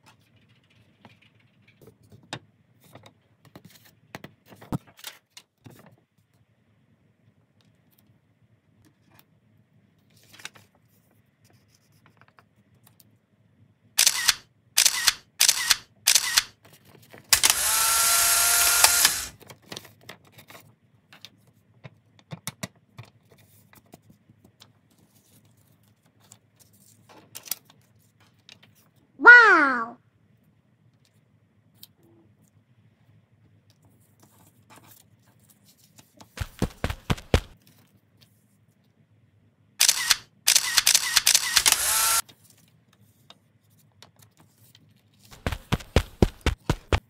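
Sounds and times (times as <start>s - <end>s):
camera shutter clicks: 14.0s - 16.6s, 17.4s - 19.4s, 39.8s - 42.2s
whir with steady hum: 17.4s - 19.4s, 40.7s - 42.2s
paper handling ticks: 36.4s - 37.6s, 45.3s - 47.0s.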